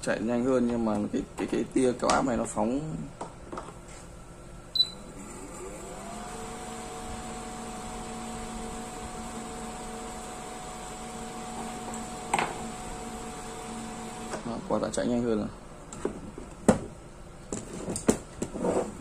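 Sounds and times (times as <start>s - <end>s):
electric fan motor whine: 4.3s - 19.0s.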